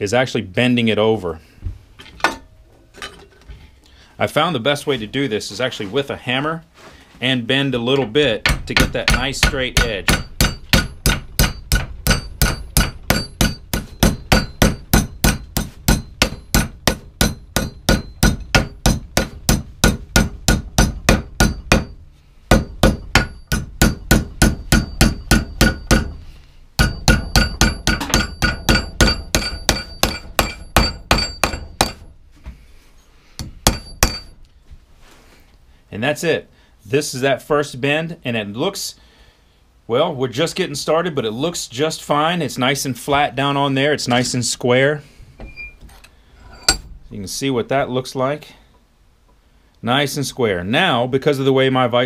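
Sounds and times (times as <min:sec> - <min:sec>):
hammer striking metal: 0:08.0 - 0:26.2, 0:26.8 - 0:32.2, 0:33.4 - 0:34.4, 0:46.5 - 0:47.0.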